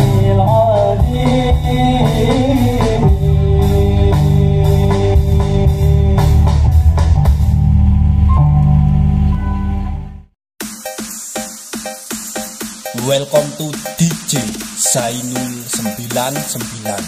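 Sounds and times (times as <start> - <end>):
drum kit with cymbal hits: 0.0 - 7.7, 10.6 - 17.0
heavy bass: 0.0 - 10.4.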